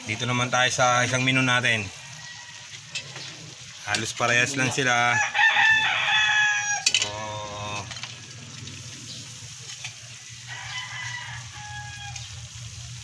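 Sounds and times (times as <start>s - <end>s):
green beans sizzling in pan: 0.0s - 13.0s
rooster crowing: 1.9s - 3.2s, 5.0s - 8.4s, 10.2s - 12.5s.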